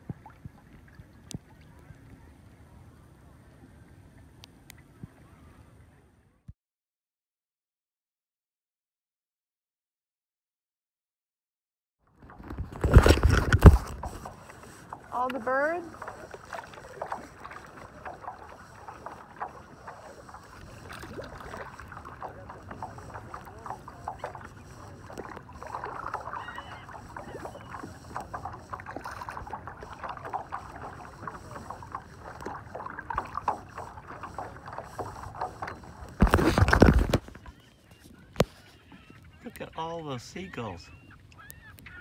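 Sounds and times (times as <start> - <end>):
small waves splashing against kayak: 12.2 - 42.0.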